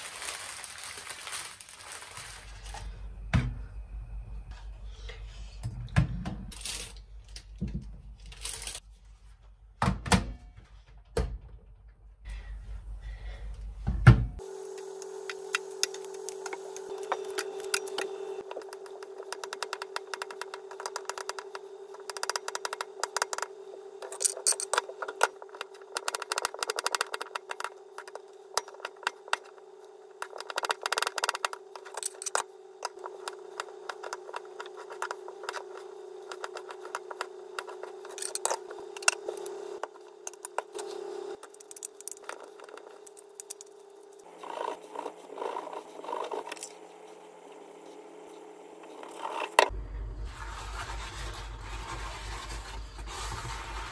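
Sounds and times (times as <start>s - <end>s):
steady hum: 12.3s - 53.9s.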